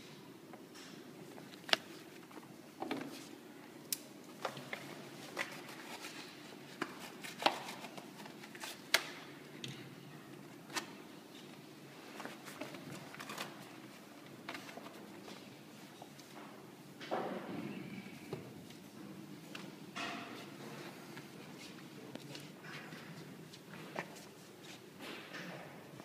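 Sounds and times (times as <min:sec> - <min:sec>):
paper crinkling and rustling: 0:04.4 - 0:09.1, 0:12.1 - 0:15.3.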